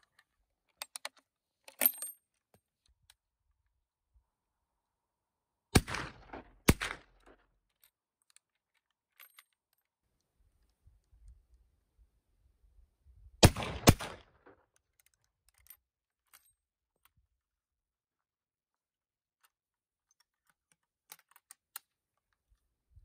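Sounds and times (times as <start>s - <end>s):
rifle shots echoing: 5.8s - 7.3s, 13.4s - 14.4s.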